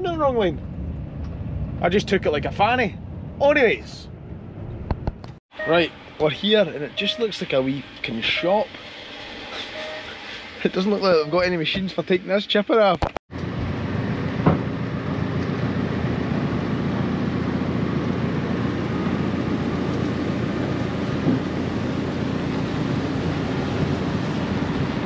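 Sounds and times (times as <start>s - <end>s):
heavy vehicle running: 13.3s - 25.0s.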